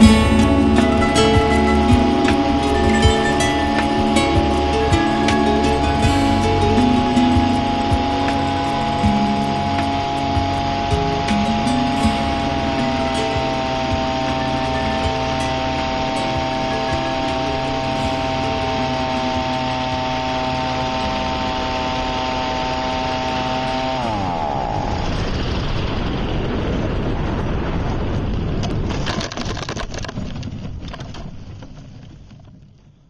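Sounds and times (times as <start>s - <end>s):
small engine winding down: 0.0s - 25.5s
wind rush: 0.0s - 32.3s.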